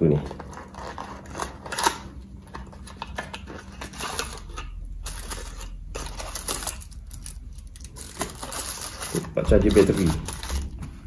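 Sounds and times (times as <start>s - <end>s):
cardboard rustling: 5.0s - 11.0s.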